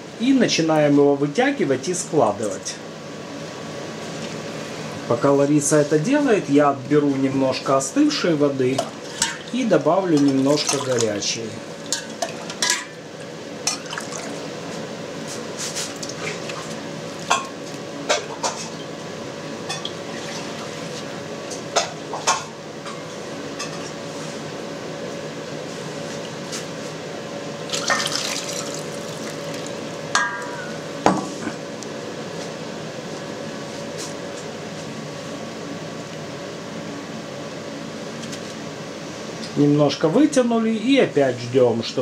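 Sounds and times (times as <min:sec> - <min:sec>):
steady background hum: 0:00.0 - 0:42.0
water sloshing and dripping in bowl: 0:08.8 - 0:11.2, 0:13.7 - 0:14.4, 0:27.7 - 0:29.8
knocks and splashes: 0:27.7 - 0:29.7.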